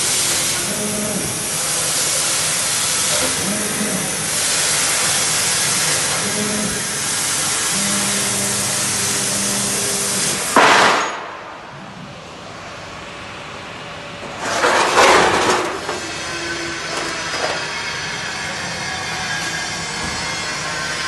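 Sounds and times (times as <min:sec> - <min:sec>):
laser cutter gas hissing: 0:00.0 - 0:10.6
low machine hum: 0:00.0 - 0:21.0.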